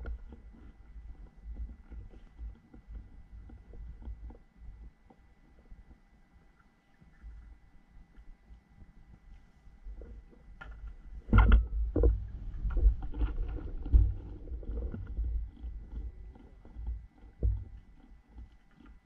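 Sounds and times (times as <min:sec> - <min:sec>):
low rumble: 0:10.0 - 0:17.8.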